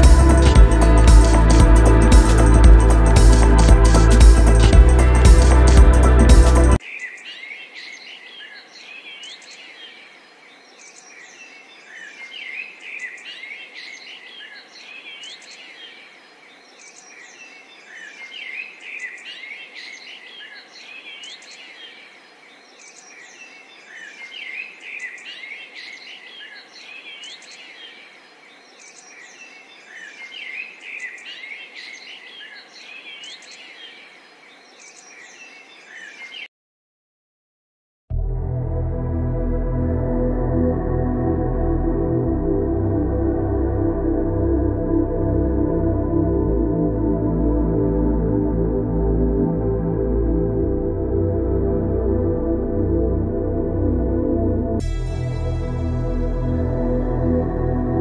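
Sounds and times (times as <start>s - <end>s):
small birds chirping: 6.7s - 36.5s
faint steady hiss: 6.8s - 36.5s.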